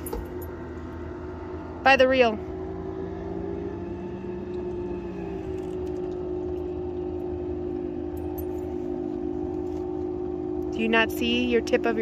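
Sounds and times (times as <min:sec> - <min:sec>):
boat motor running: 0:00.0 - 0:12.0.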